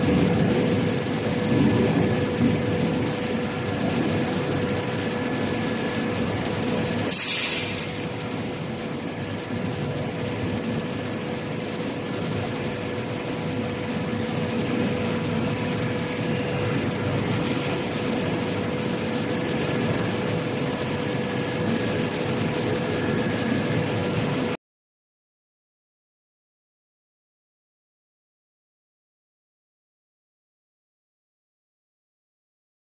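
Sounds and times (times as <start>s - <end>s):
industrial machine running: 0.0s - 24.6s
short hiss: 7.1s - 8.0s.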